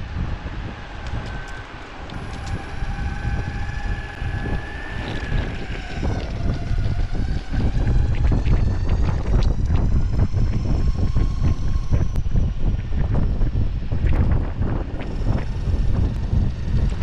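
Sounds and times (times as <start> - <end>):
faint motor whine: 0.0 - 17.0
wheels rumbling on asphalt: 0.0 - 17.0
wind buffeting microphone: 0.0 - 17.0
wheel clicks over pavement: 1.1 - 9.9.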